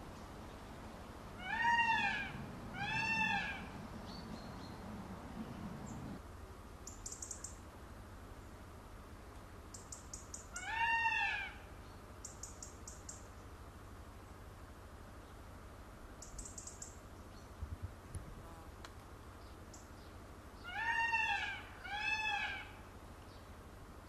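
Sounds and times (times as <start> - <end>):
peacock wailing calls: 1.3 - 4.8, 10.3 - 11.8, 20.6 - 23.0.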